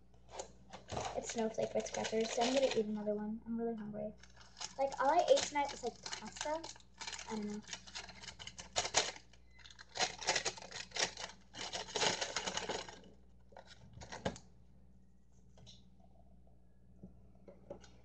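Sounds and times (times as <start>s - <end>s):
cracker packaging crinkling: 0.3s - 3.0s, 4.2s - 14.4s.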